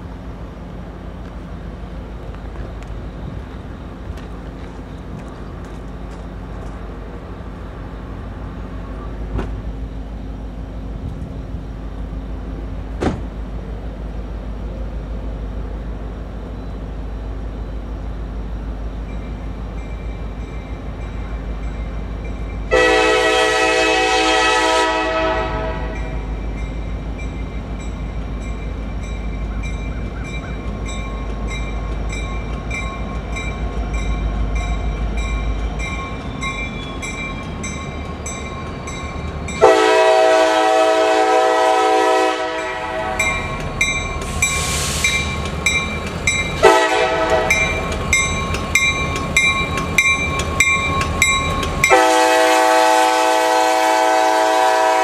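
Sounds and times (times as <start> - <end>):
diesel locomotive rumbling: 0.0 - 55.0
crossing bell ringing: 18.9 - 23.5, 25.8 - 40.8, 42.3 - 52.6
train horn chord: 22.7 - 26.2, 39.6 - 43.4, 46.6 - 47.7, 51.9 - 55.0.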